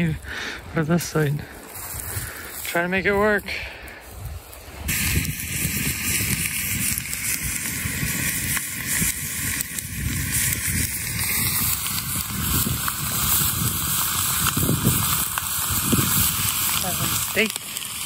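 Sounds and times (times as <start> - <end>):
campfire crackling: 0.0 - 18.0
steak sizzling in a frying pan: 4.8 - 18.0.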